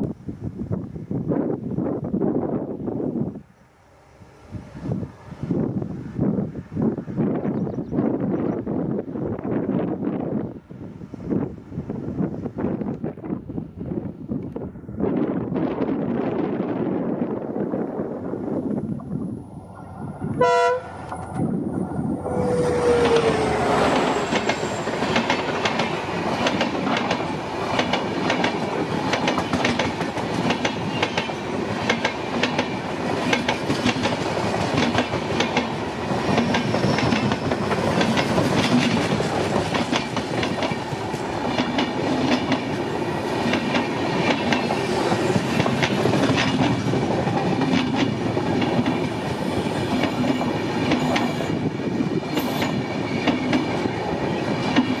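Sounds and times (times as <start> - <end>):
diesel locomotive passing: 0.8 - 55.0
train wheels clickety-clack: 22.7 - 55.0.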